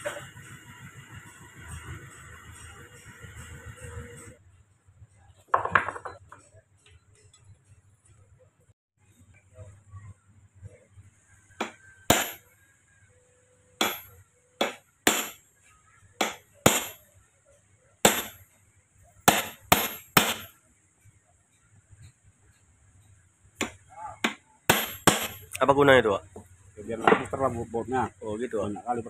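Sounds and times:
hammer striking steel tool: 11.6 - 12.5, 13.8 - 15.4, 16.2 - 17.0, 18.0 - 18.4, 19.2 - 20.6, 23.6 - 25.6.

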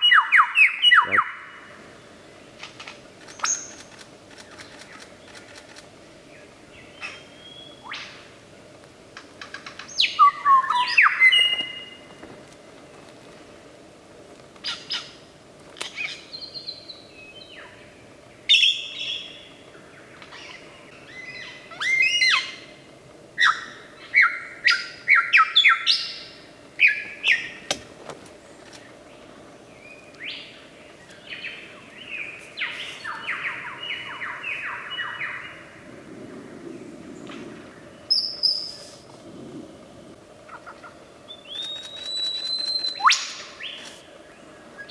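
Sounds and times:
lyrebird singing: 0.0 - 1.7, 40.5 - 44.9.

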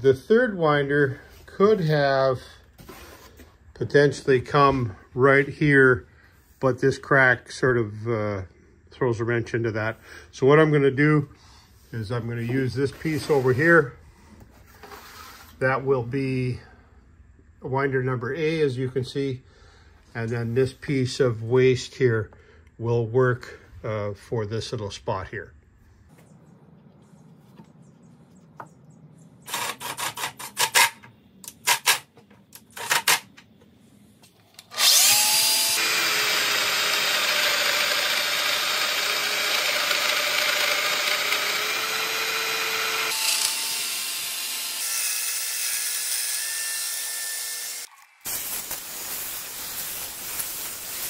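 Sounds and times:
power joiner running: 34.7 - 48.1.

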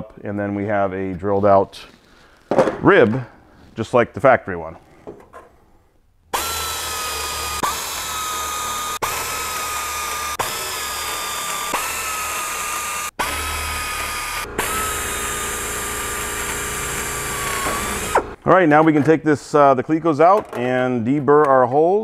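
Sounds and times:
pneumatic air drill whining: 6.3 - 18.4.

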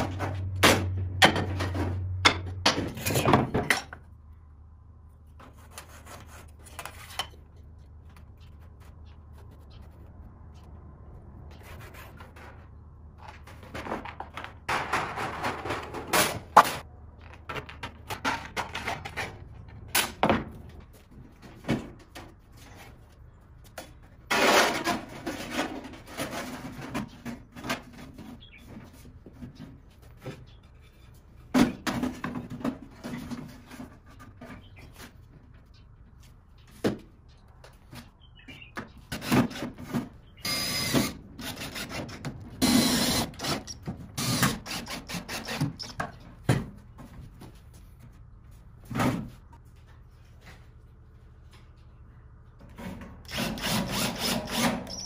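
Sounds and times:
cordless drill boring metal: 42.6 - 45.9.

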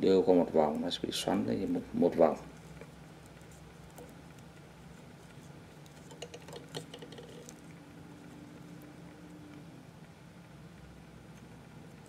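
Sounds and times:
low steady hum: 0.0 - 12.0
small clicks and rustles of wire: 1.5 - 7.8.

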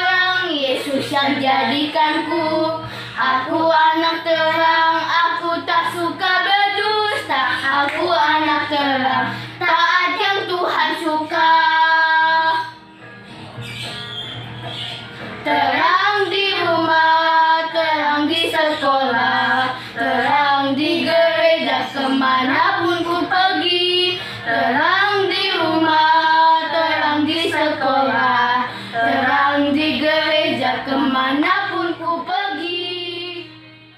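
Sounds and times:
child singing: 0.0 - 12.8, 15.4 - 33.8
faint backing music: 0.0 - 33.9.

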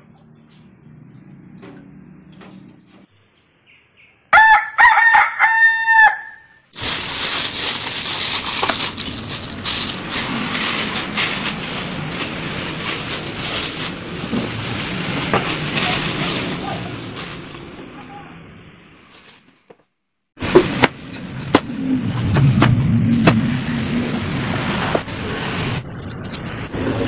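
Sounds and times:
rooster crowing: 4.3 - 6.6
plastic bag rustling: 6.8 - 17.8, 19.1 - 19.5.

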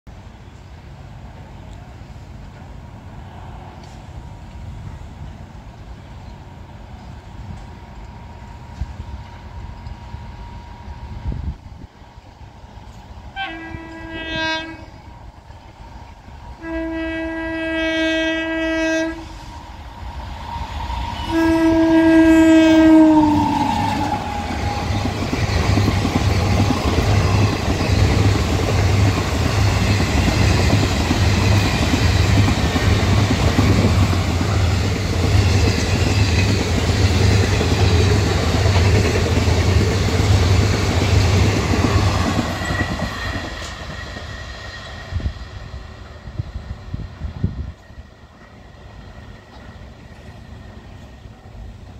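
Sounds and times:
locomotive horn blasts: 13.4 - 15.1, 16.6 - 19.5, 21.2 - 24.2
train wheels clattering on rails: 23.0 - 51.9.

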